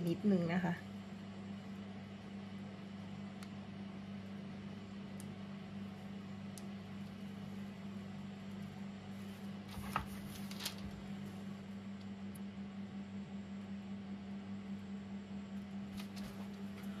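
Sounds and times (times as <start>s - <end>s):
low electrical hum: 0.0s - 17.0s
soft rustle: 9.1s - 11.0s.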